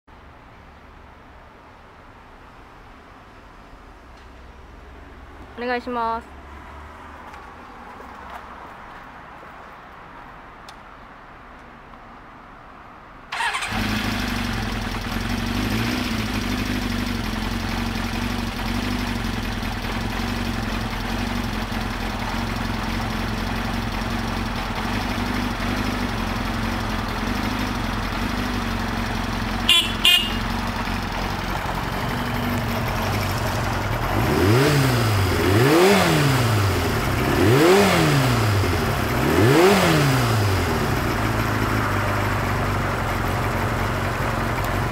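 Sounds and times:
motorcycle engine idling: 13.3s - 44.9s.

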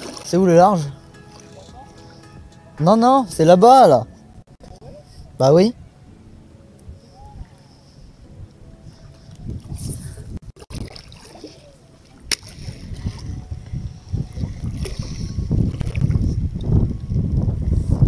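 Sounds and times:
water splashing against boat: 0.0s - 2.2s, 10.5s - 16.6s
wind buffeting microphone: 4.4s - 18.0s.

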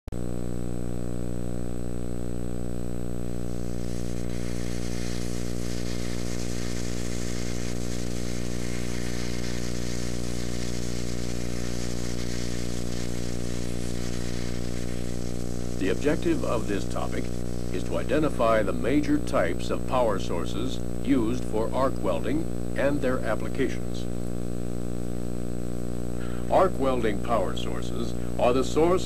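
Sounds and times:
low buzzing hum: 0.1s - 29.0s
hiss: 3.4s - 18.3s.

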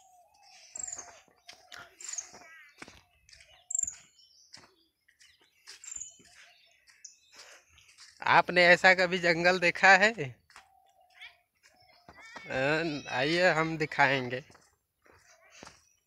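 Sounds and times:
high bird chirps: 0.0s - 8.2s, 10.4s - 13.5s.

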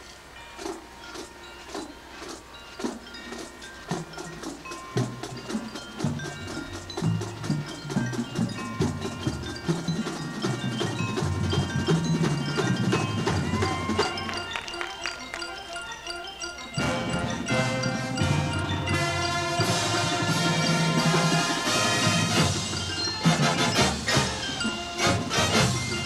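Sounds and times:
mallet keyboards ringing: 0.0s - 26.0s
rapid drum strikes: 0.6s - 14.4s, 16.8s - 26.0s
marching band playing: 0.6s - 15.6s, 16.8s - 26.0s.

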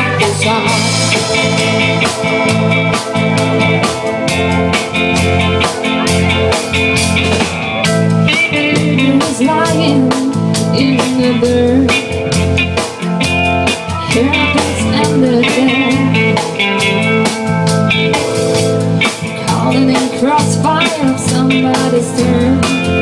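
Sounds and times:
bass: 0.0s - 23.0s
bending lead melody: 0.0s - 23.0s
drum kit beat: 0.0s - 23.0s
electric guitar: 0.0s - 23.0s
keyboard: 0.0s - 23.0s.

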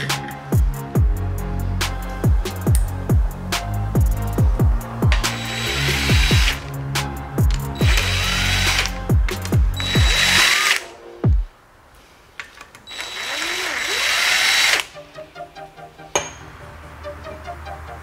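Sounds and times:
impact driver running bolts: 7.5s - 8.9s, 9.8s - 10.9s.

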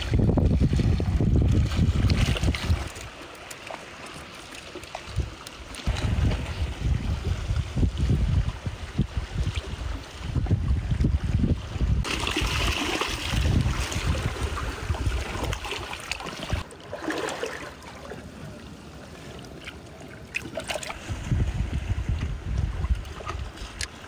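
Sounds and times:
wind buffeting the microphone: 0.0s - 3.1s, 5.1s - 16.7s, 21.0s - 23.9s
water sloshing and trickling: 0.0s - 24.0s.

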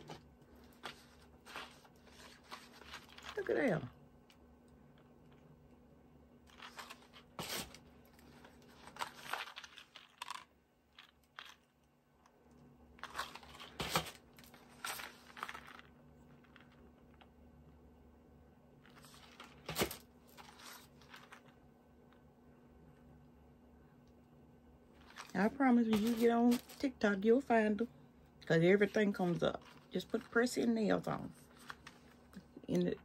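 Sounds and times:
cardboard packaging rustling: 0.0s - 3.8s, 6.5s - 11.6s, 13.0s - 16.7s, 18.8s - 21.5s, 25.0s - 27.0s, 31.2s - 32.4s.

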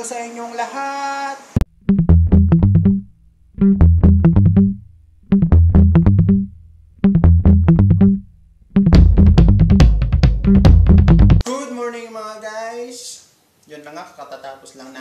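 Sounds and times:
electronic music: 3.6s - 4.8s, 7.1s - 8.2s, 8.8s - 11.4s.

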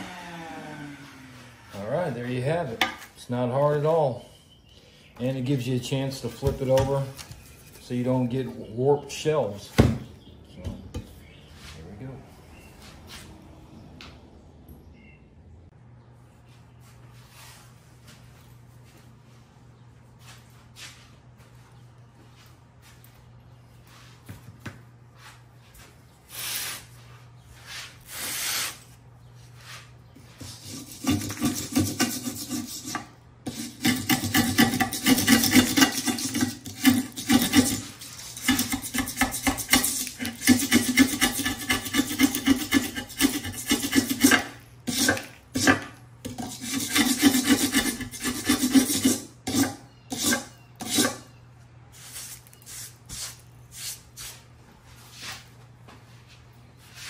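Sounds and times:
steel scraper scraping ceramic shelf: 30.4s - 51.3s.

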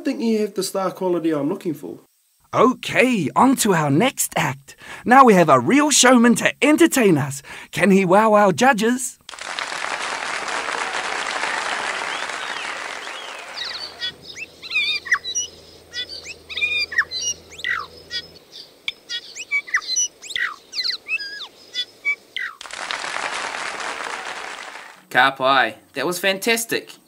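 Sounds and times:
audience applause: 9.3s - 14.2s, 22.6s - 25.0s
bird singing clear notes: 12.1s - 22.6s.

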